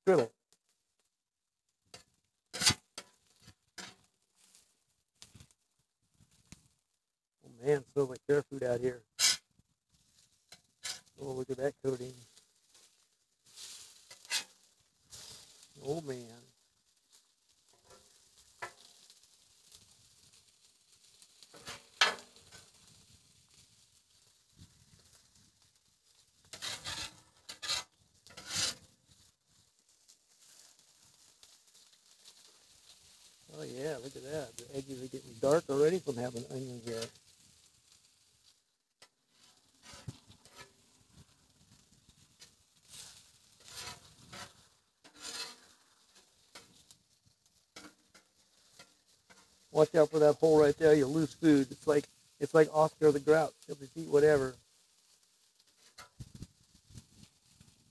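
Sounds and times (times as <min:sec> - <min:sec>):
food sizzling on a griddle: 0:01.8 - 0:05.6, 0:07.6 - 0:57.9
metal spatula scraping griddle: 0:01.9 - 0:04.6, 0:09.1 - 0:09.5, 0:10.5 - 0:16.3, 0:17.7 - 0:19.8, 0:21.1 - 0:23.0, 0:26.4 - 0:29.0, 0:34.0 - 0:37.3, 0:39.0 - 0:46.9, 0:47.7 - 0:54.5, 0:55.7 - 0:56.4.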